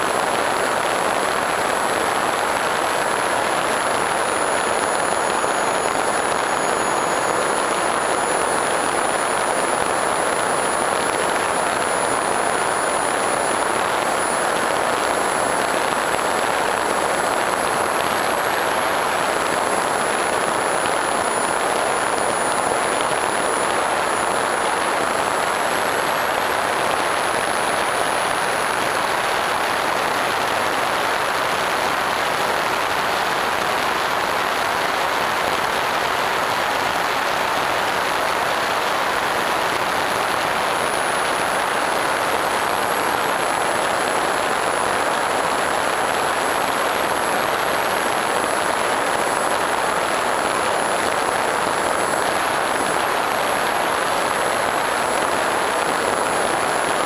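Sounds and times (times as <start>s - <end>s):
thin high motor whine: 0.0s - 31.6s
wind rush and propeller noise: 0.1s - 29.0s.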